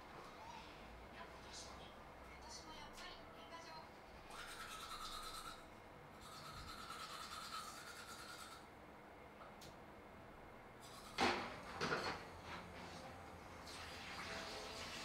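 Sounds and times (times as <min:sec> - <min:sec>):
toothbrush scrubbing teeth: 0:04.3 - 0:08.7, 0:10.8 - 0:11.2.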